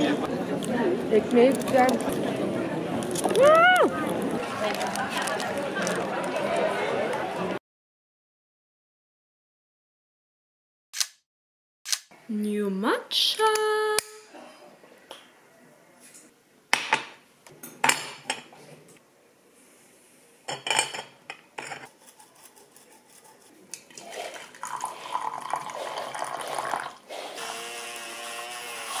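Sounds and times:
dishes and utensils clinking: 16.8 - 18.7, 20.5 - 22.0.

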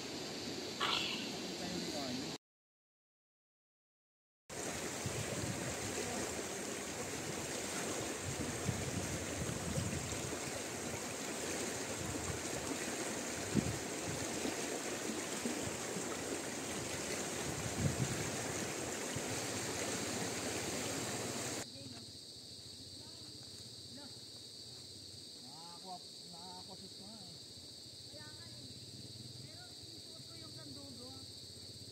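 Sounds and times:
river rushing over rocks: 4.6 - 21.6.

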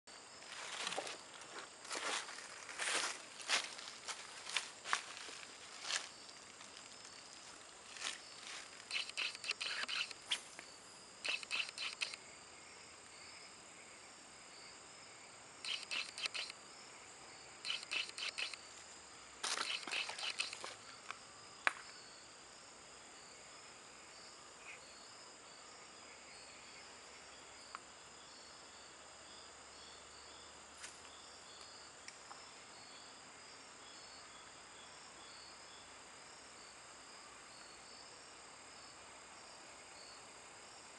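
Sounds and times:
insects chirping: 0.1 - 40.9
fishing reel clicking: 8.9 - 10.2, 11.2 - 12.2, 15.7 - 16.5, 17.7 - 18.6, 19.6 - 20.6
sharp click: 8.9 - 10.4, 11.2 - 12.2, 15.7 - 16.6, 17.7 - 18.6, 19.5 - 20.7.

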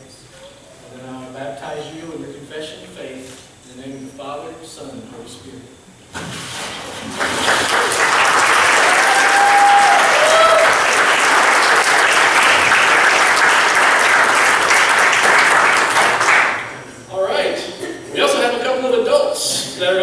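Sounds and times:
congregation applauding: 7.0 - 16.8.

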